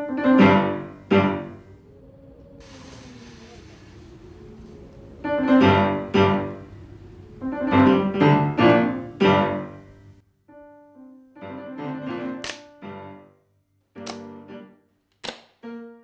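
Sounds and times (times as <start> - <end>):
piano music: 0.0 - 2.4, 4.2 - 13.4, 14.0 - 14.8.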